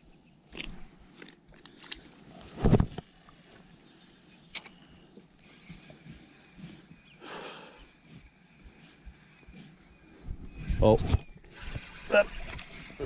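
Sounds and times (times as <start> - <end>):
sharp click: 4.5 - 4.8
brief rustle: 10.6 - 12.9.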